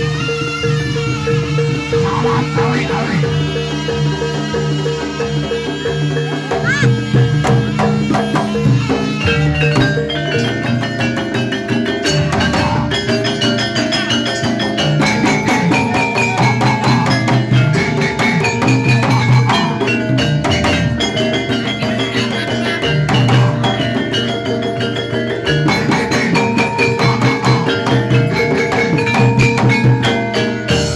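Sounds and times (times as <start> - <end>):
kendang drums: 0.0 - 30.9
metallophones playing: 0.0 - 30.9.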